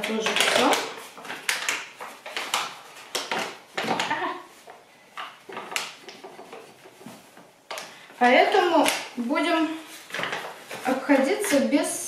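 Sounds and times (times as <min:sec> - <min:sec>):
paper packet rustling and tapping: 0:00.0 - 0:11.9.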